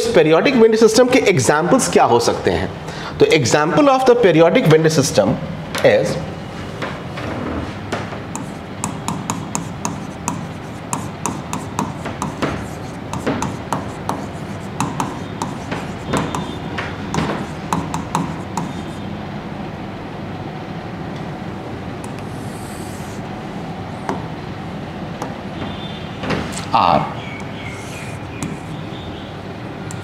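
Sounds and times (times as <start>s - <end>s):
pen scratching on writing board: 8.3s - 19.1s, 22.1s - 23.2s, 27.5s - 28.8s.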